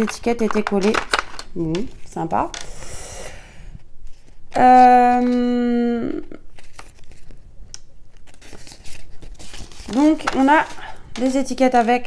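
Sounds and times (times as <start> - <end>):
paper labels crinkling: 0.0 - 2.7, 6.3 - 12.0.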